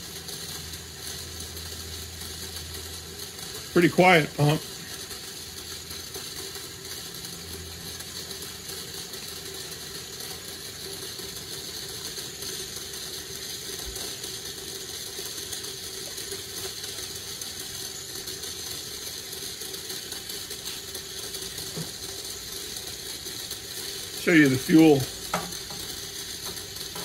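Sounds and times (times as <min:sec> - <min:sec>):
electric fuel pump humming: 0:00.0 - 0:27.0.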